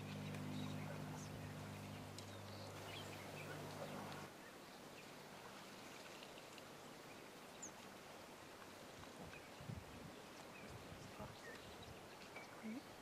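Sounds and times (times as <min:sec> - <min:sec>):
low steady hum: 0:00.0 - 0:05.4
quiet hiss: 0:00.0 - 0:13.0.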